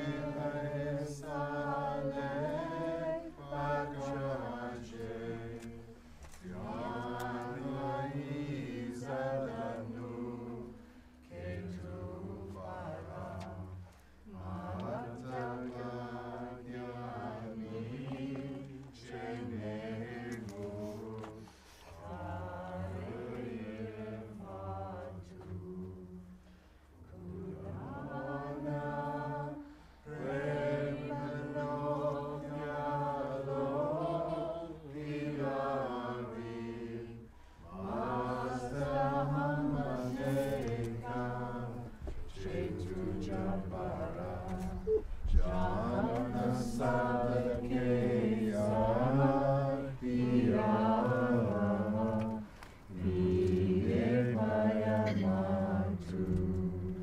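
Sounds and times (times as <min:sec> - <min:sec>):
voices chanting long notes: 0:00.0 - 0:57.0.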